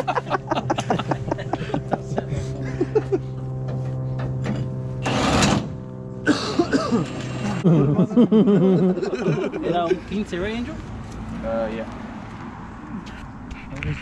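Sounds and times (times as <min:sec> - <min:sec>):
steady motor hum: 0:00.0 - 0:11.2
voices: 0:07.4 - 0:11.9.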